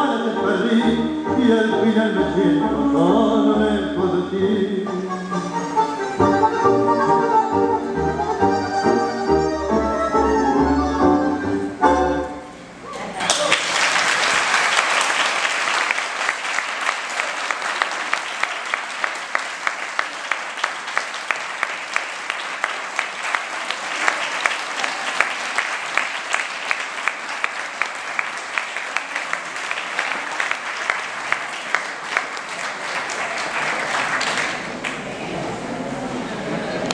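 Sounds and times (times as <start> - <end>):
close hands clapping steadily: 13.2 - 35.0
audience applauding: 13.2 - 35.1.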